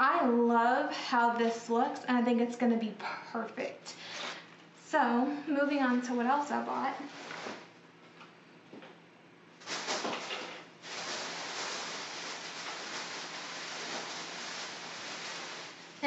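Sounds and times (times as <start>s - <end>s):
handling and rustling noise: 7.0s - 7.7s, 9.6s - 16.0s
scraping rustle: 9.6s - 16.0s.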